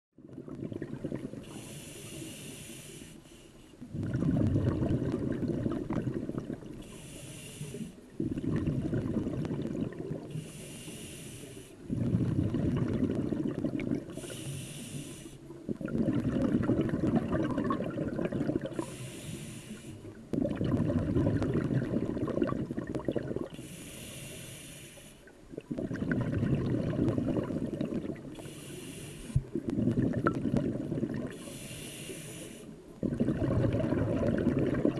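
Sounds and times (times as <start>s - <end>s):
exhaled bubbles underwater: 0.2s - 2.5s, 3.8s - 11.0s, 11.8s - 24.4s, 25.2s - 34.9s
regulator inhale hiss: 1.4s - 3.8s, 6.8s - 8.1s, 10.3s - 11.9s, 14.1s - 15.6s, 18.7s - 20.2s, 23.5s - 25.4s, 28.3s - 29.6s, 31.3s - 32.9s.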